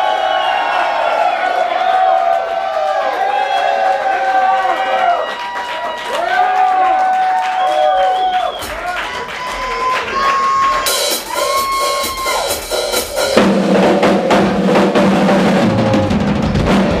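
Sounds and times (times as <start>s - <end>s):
rock drum solo: 10.5s - 17.0s.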